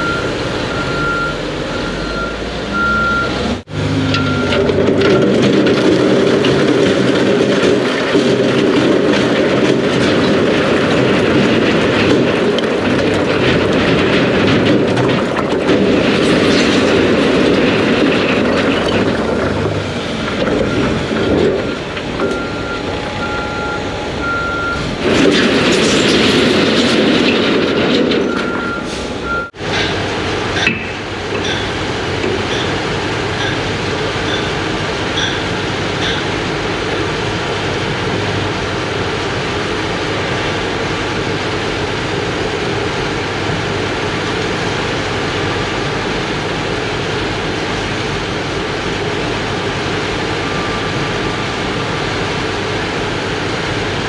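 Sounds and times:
diesel engine running: 0:00.0 - 0:54.0
rocks sliding and crashing: 0:04.5 - 0:22.6
backup alarm beeping: 0:21.6 - 0:24.9.

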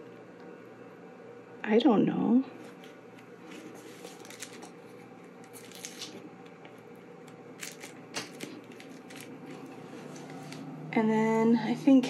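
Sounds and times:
plastic film crinkling: 0:02.7 - 0:10.7.

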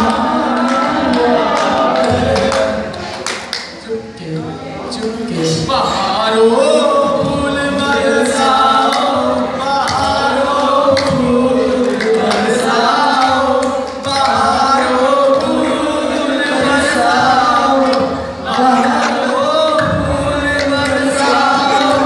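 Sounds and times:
hand-clapping: 0:00.0 - 0:03.8, 0:08.2 - 0:22.0
men singing into microphones: 0:00.0 - 0:22.0.

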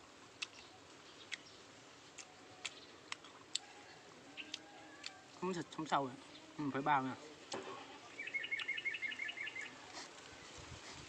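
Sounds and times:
crunchy fruit being chewed: 0:00.0 - 0:06.2, 0:09.5 - 0:11.0
quiet hiss: 0:00.0 - 0:11.0.

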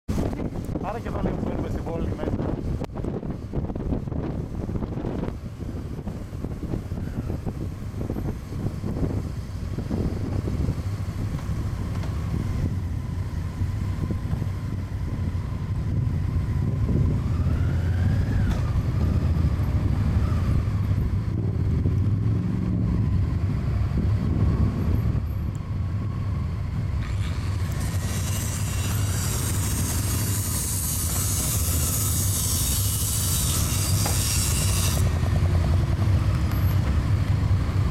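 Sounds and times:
other motorcycles riding: 0:00.1 - 0:37.9
motorcycle engine running: 0:35.0 - 0:37.9.

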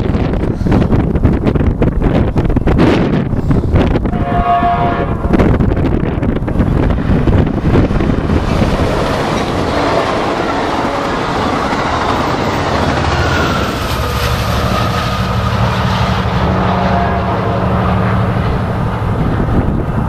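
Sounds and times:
locomotive engine drone: 0:00.0 - 0:20.0
train wheels clattering on rails: 0:06.4 - 0:16.6.

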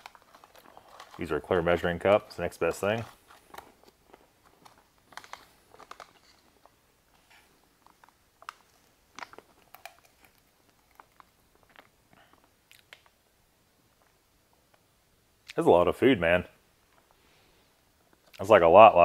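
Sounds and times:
foil pouch crinkling: 0:00.0 - 0:06.8, 0:07.8 - 0:13.1.

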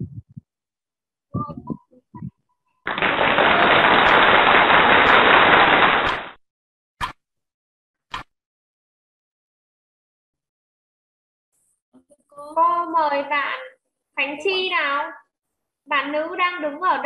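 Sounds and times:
rough microphone noise: 0:00.0 - 0:00.5, 0:01.3 - 0:06.3.

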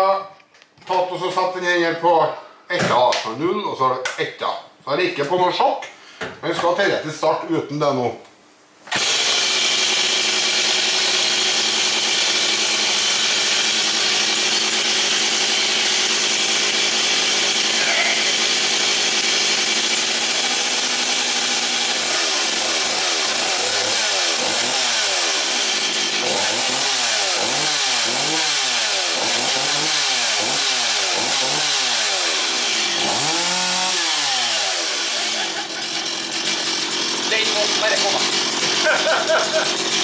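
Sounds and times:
chainsaw revving: 0:08.9 - 0:40.0.

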